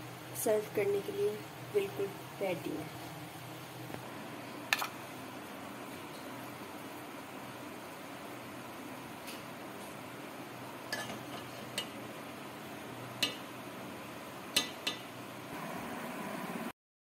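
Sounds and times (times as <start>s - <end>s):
metal spoon clinking on plate: 10.9s - 12.0s.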